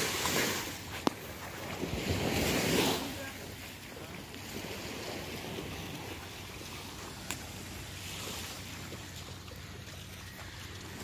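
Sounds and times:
surf washing onto beach: 0:00.0 - 0:11.0.

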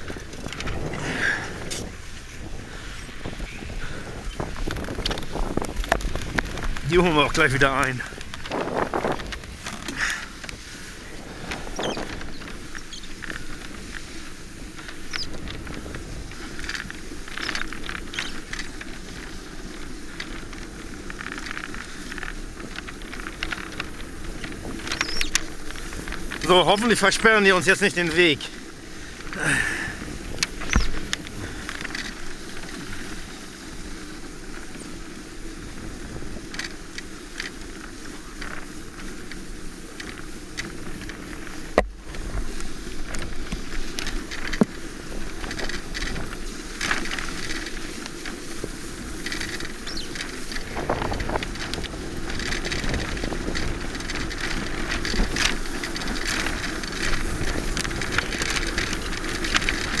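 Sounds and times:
wind rushing: 0:00.0 - 0:12.5
wheels rumbling on sand: 0:00.0 - 1:00.0.

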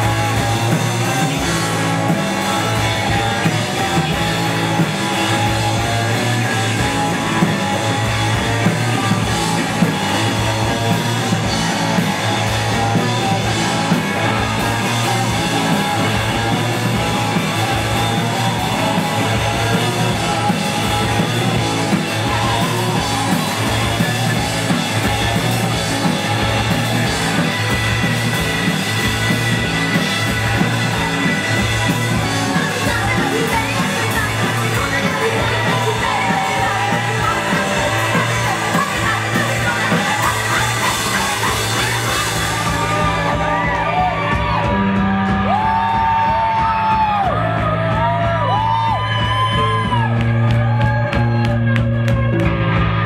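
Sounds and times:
drum kit: 0:00.0 - 0:53.0
electric guitar: 0:00.0 - 0:53.0
lead singer vocals: 0:32.3 - 0:44.6.

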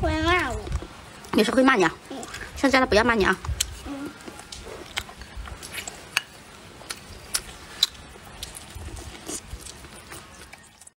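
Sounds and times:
person chewing: 0:03.6 - 0:10.9.

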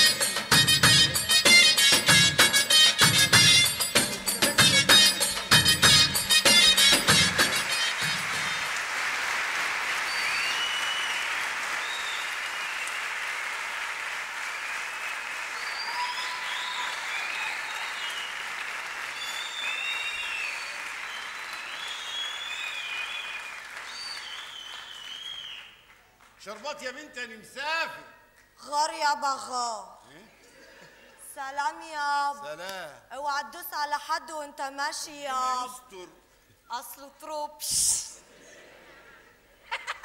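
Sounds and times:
audience applauding: 0:06.6 - 0:26.7
high whistles: 0:10.0 - 0:13.0, 0:15.5 - 0:25.8.

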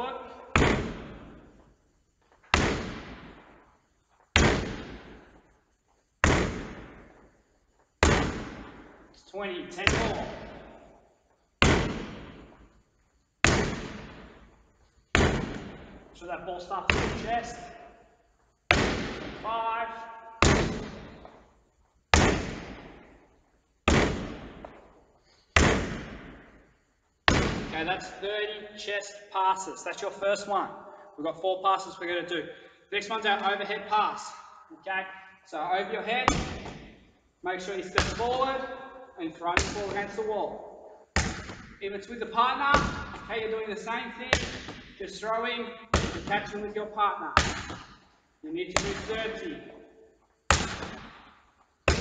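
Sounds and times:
ball slapping against a wall: 0:00.6 - 0:01.7, 0:02.4 - 0:03.7, 0:04.3 - 0:05.6, 0:06.2 - 0:07.3, 0:08.0 - 0:09.0, 0:11.6 - 0:12.8, 0:13.4 - 0:16.1, 0:16.9 - 0:17.8, 0:18.7 - 0:19.4, 0:20.4 - 0:21.5, 0:22.1 - 0:25.0, 0:25.6 - 0:27.8, 0:36.3 - 0:37.1, 0:39.6 - 0:40.2, 0:41.1 - 0:41.8, 0:42.7 - 0:43.4, 0:44.3 - 0:45.0, 0:45.9 - 0:46.5, 0:47.4 - 0:48.1, 0:50.5 - 0:52.0.

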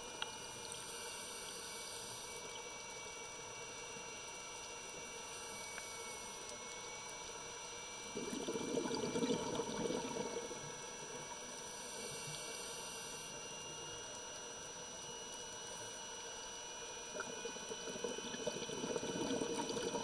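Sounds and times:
exhaled breath bubbling underwater: 0:08.1 - 0:10.8, 0:17.1 - 0:20.0
underwater hiss: 0:11.8 - 0:13.3.

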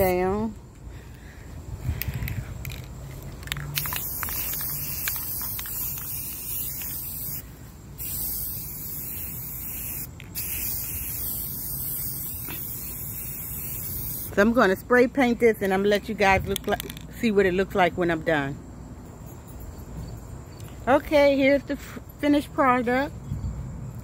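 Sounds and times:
aerosol spray can hissing: 0:03.7 - 0:07.4, 0:08.0 - 0:14.4.

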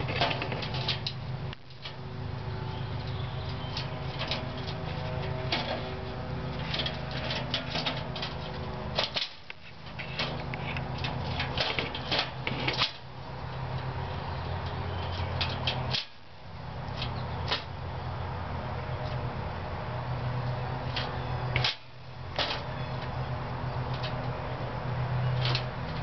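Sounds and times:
low mechanical hum: 0:00.0 - 0:26.0
claws clicking on wire trap: 0:20.9 - 0:22.7.

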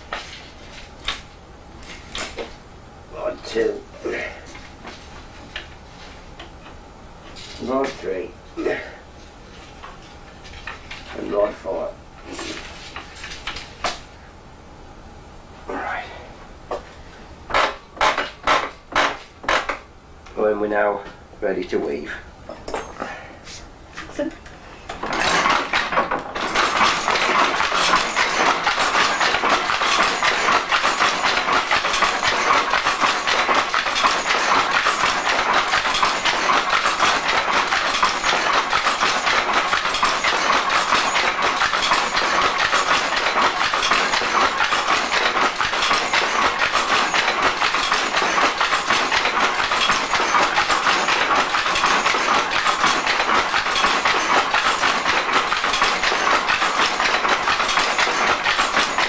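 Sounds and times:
loom mechanical clatter: 0:00.0 - 0:02.6, 0:09.8 - 0:14.0, 0:17.5 - 0:19.9, 0:24.9 - 0:59.0.

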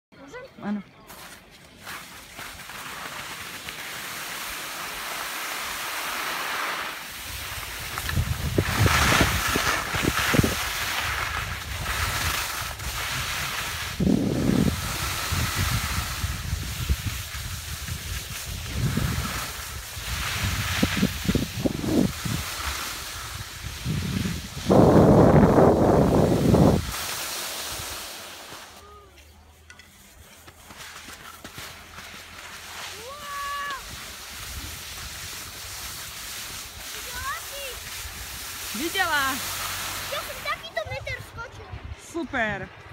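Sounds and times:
skis hissing over snow: 0:01.0 - 0:41.6
wind buffeting microphone: 0:07.2 - 0:28.0, 0:33.8 - 0:42.9.

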